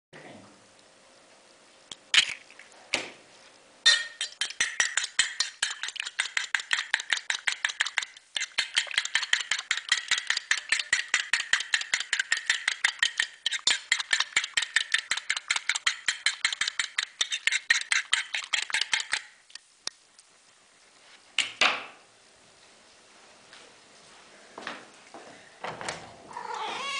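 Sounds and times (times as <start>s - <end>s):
fork beating egg on plate: 3.9s - 19.4s.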